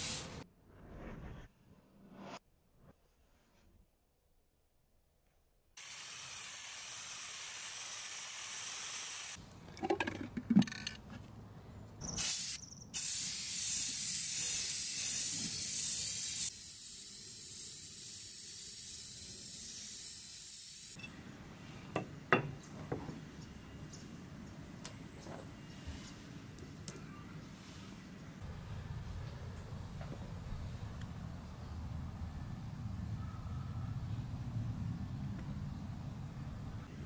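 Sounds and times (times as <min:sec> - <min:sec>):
spray can hissing: 0:00.0 - 0:00.4, 0:05.8 - 0:09.4, 0:12.1 - 0:21.0.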